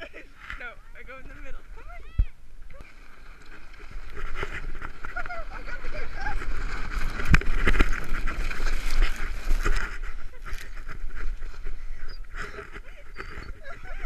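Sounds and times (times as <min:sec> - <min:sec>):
wind buffeting microphone: 0:01.1 - 0:14.0
sled runners scraping snow: 0:02.8 - 0:14.0.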